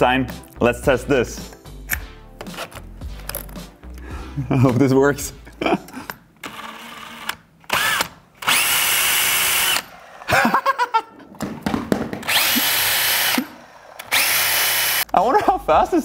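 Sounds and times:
cordless drill whining: 0:06.4 - 0:10.3, 0:12.2 - 0:15.1.

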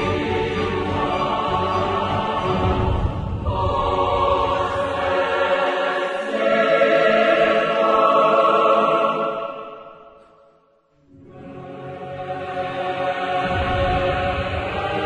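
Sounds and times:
choir singing sustained chords: 0:00.0 - 0:15.0.

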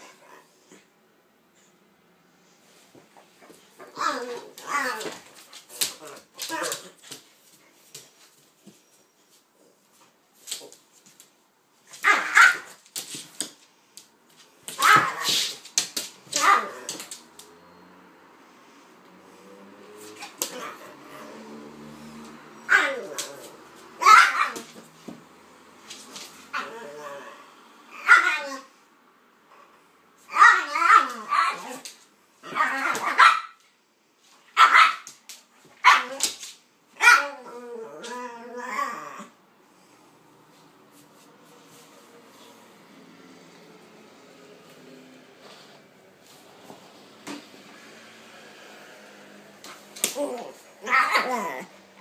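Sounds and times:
dog barking: 0:12.0 - 0:12.8, 0:24.0 - 0:24.7, 0:32.9 - 0:33.6, 0:34.6 - 0:35.1, 0:35.8 - 0:36.2, 0:37.0 - 0:37.3
dogs barking: 0:32.6 - 0:33.6.

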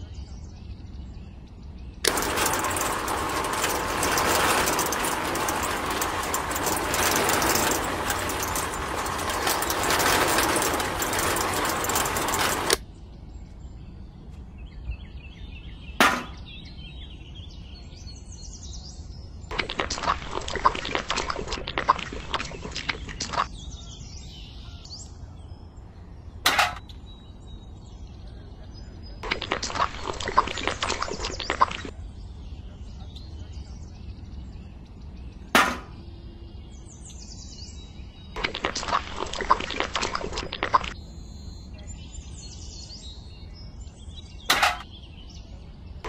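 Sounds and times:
small concrete mixer running: 0:02.0 - 0:12.8
cement slurry pouring into bucket: 0:19.5 - 0:23.5, 0:29.2 - 0:31.9, 0:38.4 - 0:41.0.

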